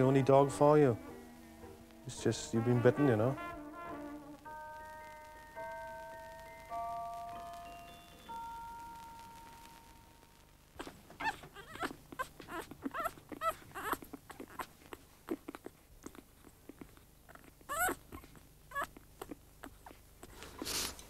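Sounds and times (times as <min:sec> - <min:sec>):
puppies whimpering: 0:10.8 - 0:20.9.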